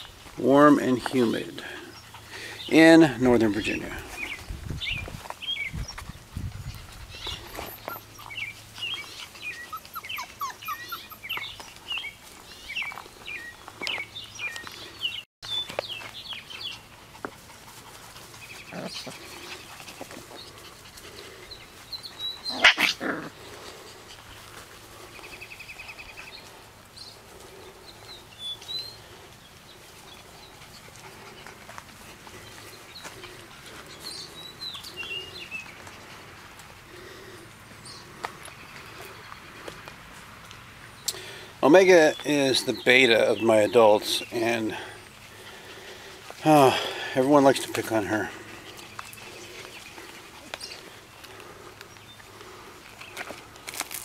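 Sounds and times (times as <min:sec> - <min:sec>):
puppies whining and yipping: 0:05.8 - 0:11.7.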